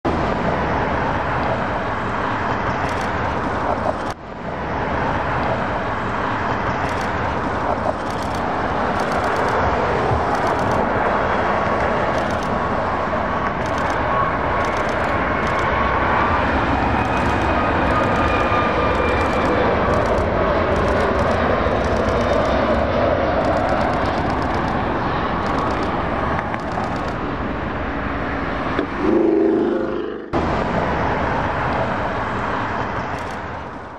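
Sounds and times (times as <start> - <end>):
road traffic noise: 0.0 - 33.9
jet roar: 0.1 - 33.9
thin engine whine: 28.6 - 31.1.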